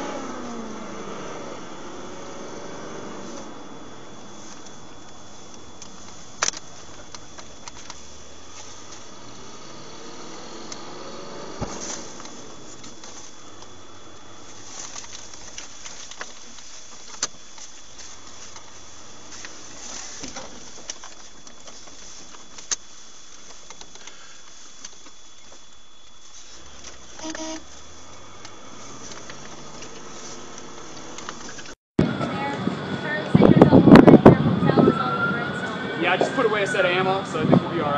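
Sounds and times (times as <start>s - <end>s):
vehicle engine and road noise: 0.0s - 37.9s
short tone: 27.2s - 27.7s.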